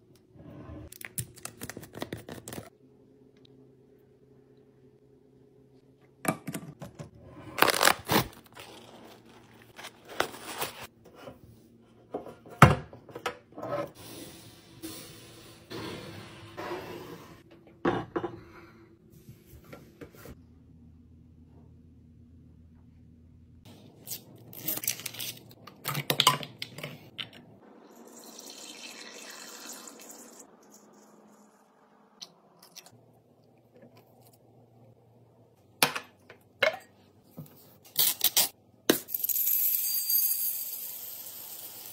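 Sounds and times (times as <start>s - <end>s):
papery rustling and crinkling: 7.6s - 10.9s.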